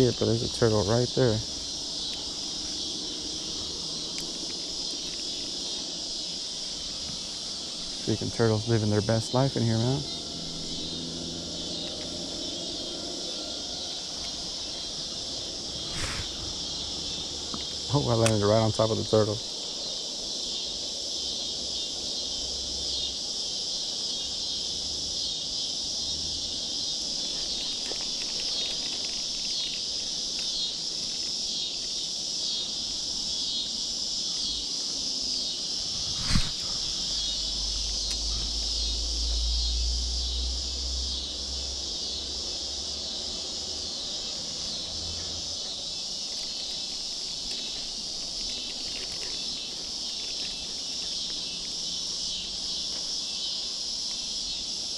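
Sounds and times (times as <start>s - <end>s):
insects chorus: 0.0s - 54.9s
sharp click: 17.6s - 18.4s.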